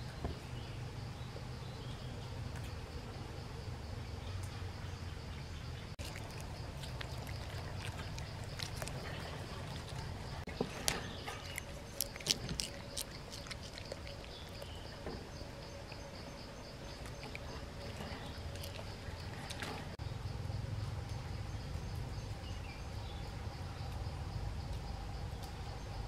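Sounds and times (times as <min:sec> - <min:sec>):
insect drone: 0:00.1 - 0:26.0
gibbons eating leafy stems: 0:05.8 - 0:20.0.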